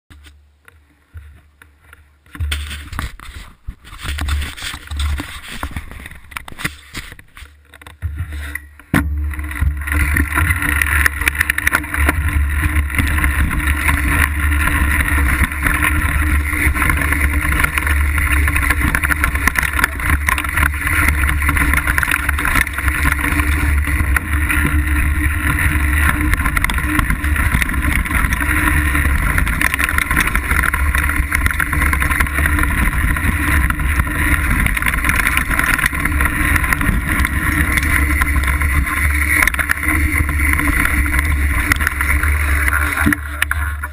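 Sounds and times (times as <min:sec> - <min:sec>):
bike tyre noise: 0:00.1 - 0:43.9
low rumble: 0:08.2 - 0:43.9
wind on microphone: 0:09.4 - 0:43.9.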